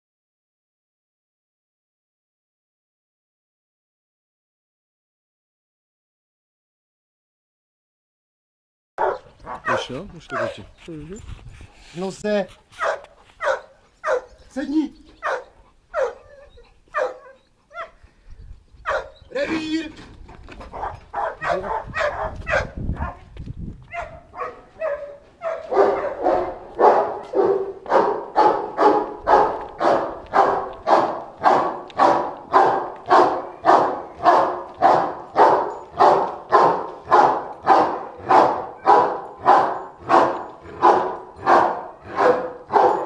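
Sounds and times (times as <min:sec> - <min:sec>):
large dog barking: 0:09.0 - 0:10.8, 0:12.8 - 0:18.0, 0:18.8 - 0:19.3, 0:20.6 - 0:23.3, 0:23.9 - 0:43.0.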